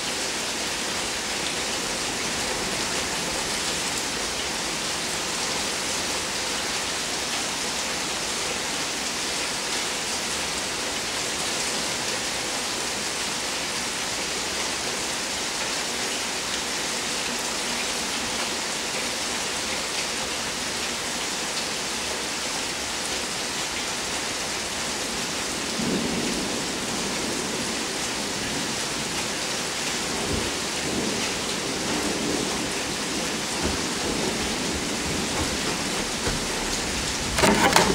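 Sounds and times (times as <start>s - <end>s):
steady rain falling: 0.0s - 37.9s
thunder rumbling: 30.3s - 37.9s.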